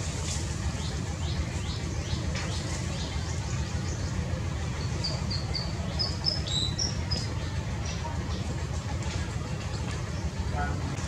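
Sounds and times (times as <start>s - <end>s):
steady low rumble: 0.0s - 11.0s
birds chirping: 0.5s - 8.6s.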